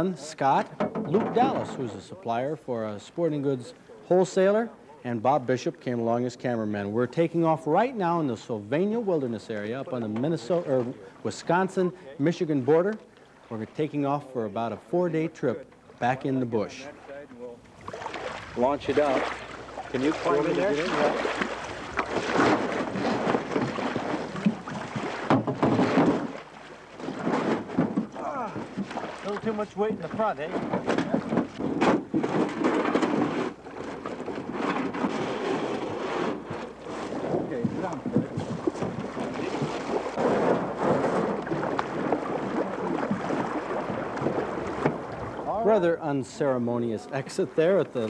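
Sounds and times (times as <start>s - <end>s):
water splashing and sloshing: 0.3s - 2.3s, 7.7s - 48.0s
canoe hull bumping and knocking: 0.4s - 2.1s, 9.7s - 11.1s, 17.7s - 45.9s.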